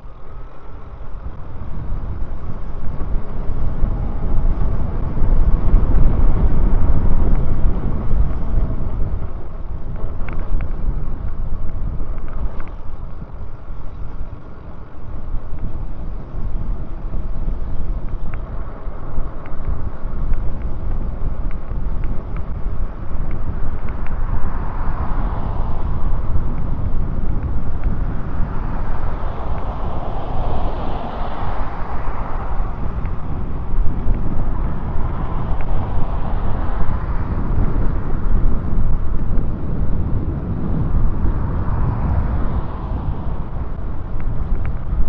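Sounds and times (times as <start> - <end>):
wind rushing over microphone: 0.0 - 45.0.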